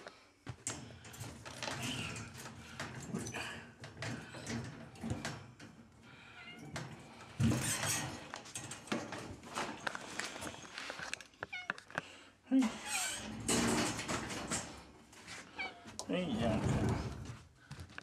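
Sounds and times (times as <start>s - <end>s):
rustling: 6.1s - 12.2s.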